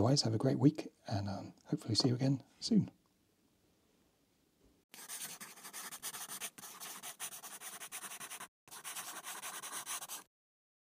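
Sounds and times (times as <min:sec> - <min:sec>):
pencil sketching on paper: 0:05.0 - 0:10.3.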